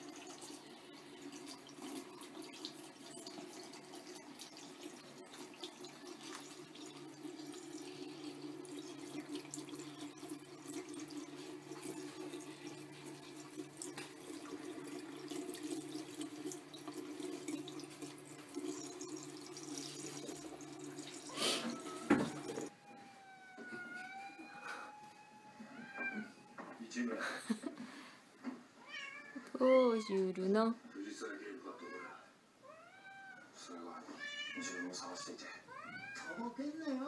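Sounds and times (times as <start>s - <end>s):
water running from faucet: 0.0s - 22.7s, 34.6s - 37.0s
cat meowing: 21.4s - 26.6s, 28.8s - 30.2s, 31.7s - 36.6s.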